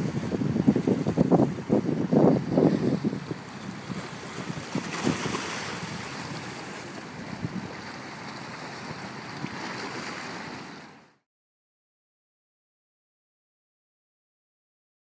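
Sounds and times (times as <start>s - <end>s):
wind rushing over microphone: 0.0s - 6.5s, 7.2s - 7.9s
water lapping against rocks: 0.0s - 10.9s.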